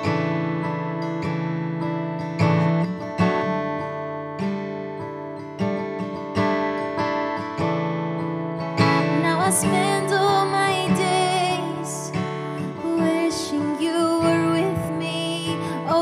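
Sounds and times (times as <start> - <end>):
acoustic guitar chords: 0.0 - 16.0
woman singing: 8.8 - 16.0.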